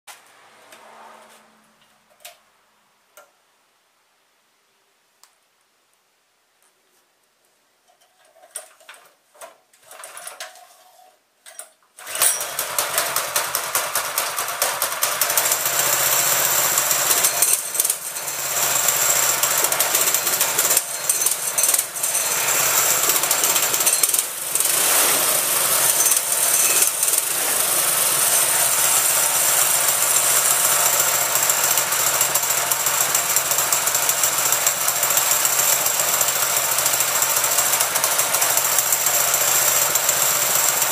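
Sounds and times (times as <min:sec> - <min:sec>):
pull cord pulls: 0:11.5 - 0:14.4
small engine running: 0:12.0 - 0:40.9.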